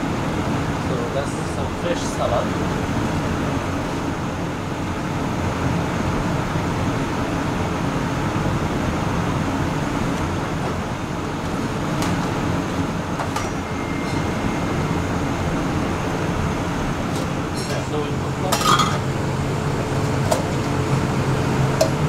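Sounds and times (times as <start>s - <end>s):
ventilation fans rushing: 0.0s - 22.0s.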